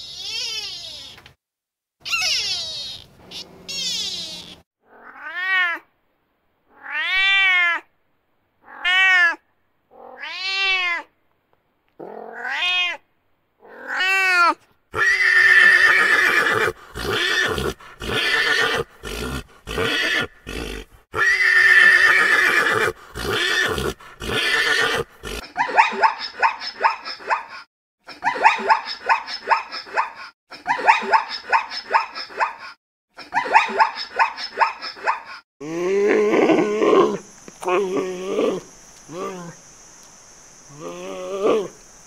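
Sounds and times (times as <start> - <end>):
cat meowing: 2.0 - 5.9, 6.7 - 7.9, 8.6 - 11.1, 12.0 - 13.0
pony neighing: 2.1 - 5.3, 15.0 - 25.4.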